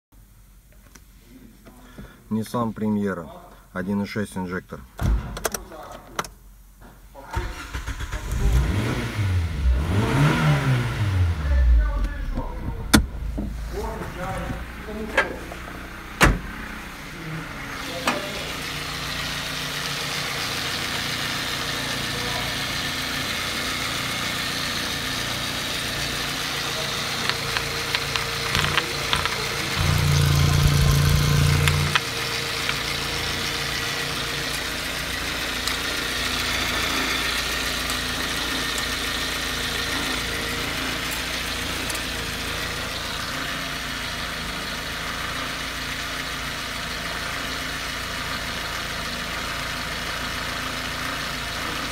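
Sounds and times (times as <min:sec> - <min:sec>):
car engine idling: 0:07.4 - 0:51.9
low hum: 0:11.3 - 0:14.9, 0:27.4 - 0:33.4.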